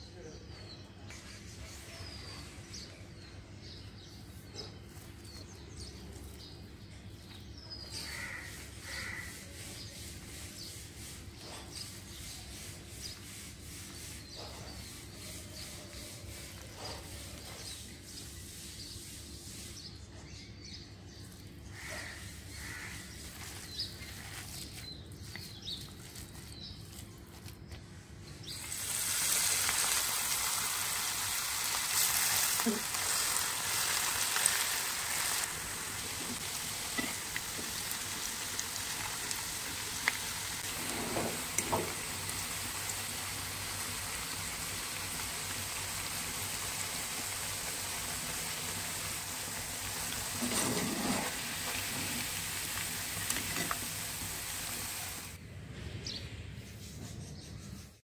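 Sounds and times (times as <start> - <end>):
birds chirping: 0.0 - 28.8
hand mixing batter in a bowl: 22.4 - 27.8
food sizzling in hot oil: 28.5 - 55.4.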